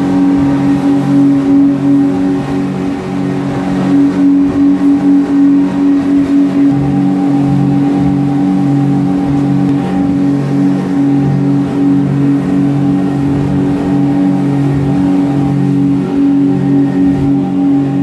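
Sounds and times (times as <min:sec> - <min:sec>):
boat engines droning: 0:00.0 - 0:18.0.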